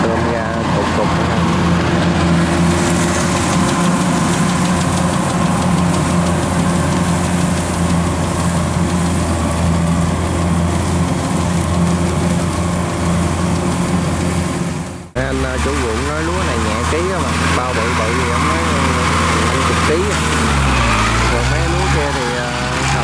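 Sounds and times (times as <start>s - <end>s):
combine harvester running: 0.0s - 23.0s.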